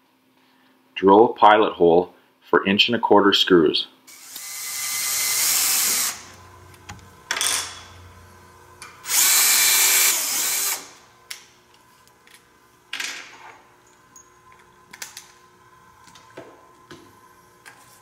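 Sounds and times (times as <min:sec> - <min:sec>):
cordless drill whirring into wood: 0:04.1 - 0:06.4, 0:09.0 - 0:11.0.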